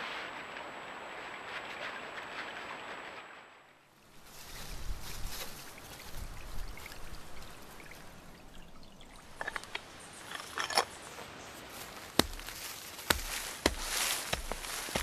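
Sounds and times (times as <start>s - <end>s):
faint water trickle: 4.3s - 10.6s
metal shovel clicks and rattles: 9.4s - 10.9s
shovel blade striking earth: 12.1s - 15.0s.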